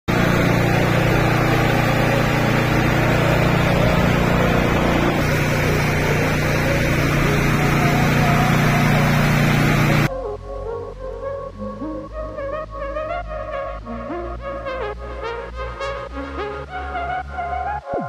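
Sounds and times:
pressure washer motor humming: 0.0s - 10.1s
water jet hissing: 0.1s - 10.1s.

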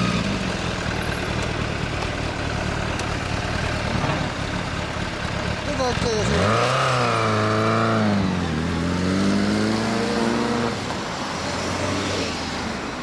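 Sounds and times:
street traffic: 0.0s - 13.0s.

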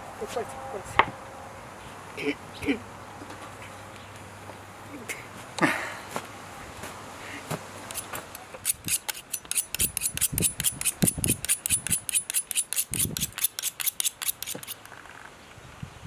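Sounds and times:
knife scraping on steel: 7.9s - 14.9s.

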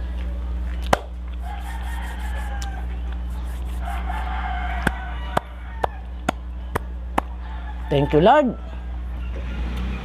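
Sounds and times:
rooster crowing: 1.4s - 6.3s, 7.3s - 9.4s.

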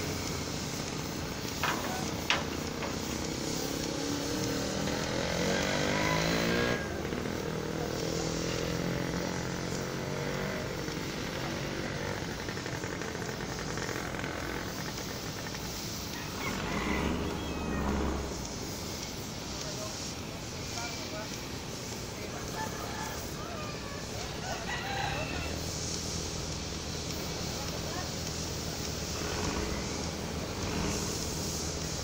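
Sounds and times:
small engine revving: 0.0s - 20.0s, 22.6s - 32.0s
ship engine drone: 0.0s - 22.5s.

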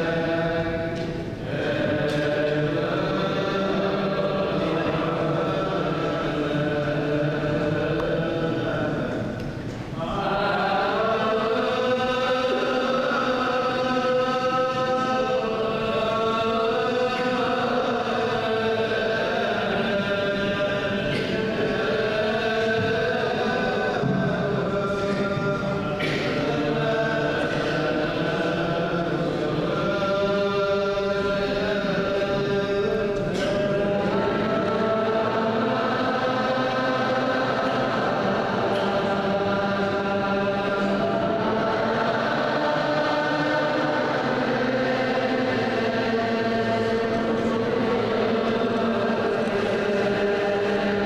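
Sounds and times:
voices chanting long held notes: 0.0s - 51.0s.

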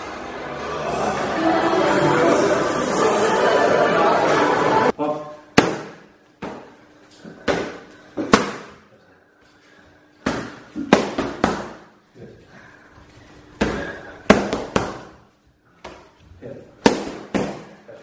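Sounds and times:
boxing gloves hitting focus mitts: 10.2s - 11.9s, 13.6s - 15.2s, 16.8s - 17.8s.

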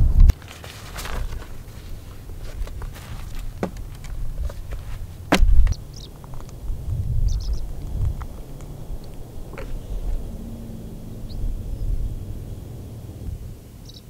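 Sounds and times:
wind rumble on microphone: 0.0s - 0.4s, 1.0s - 14.0s
fabric rustling: 0.3s - 5.7s
chair poles clicking and knocking: 2.5s - 6.5s.

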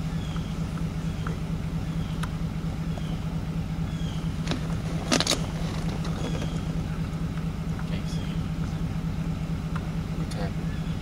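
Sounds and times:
truck engine idling: 0.0s - 11.0s.

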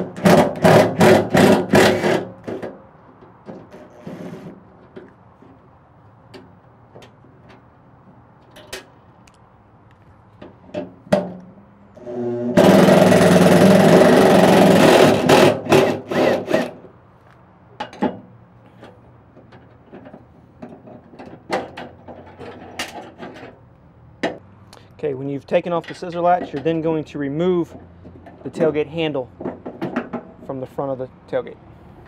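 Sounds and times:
power drill motor: 12.0s - 16.8s
latch parts clicking and knocking: 17.8s - 23.6s, 25.8s - 26.8s, 29.4s - 30.4s.

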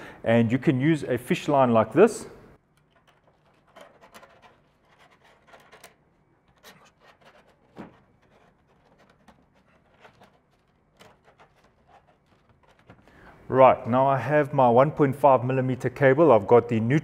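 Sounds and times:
rustling and small clicks: 2.7s - 13.2s.

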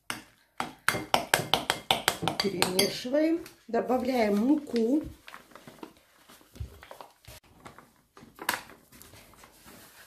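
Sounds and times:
paper bag rustling: 4.2s - 10.0s.

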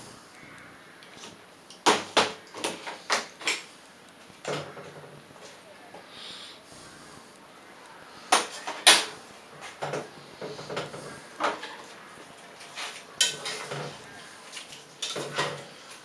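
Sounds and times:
pots and utensils clattering: 1.2s - 3.7s, 8.3s - 16.0s.

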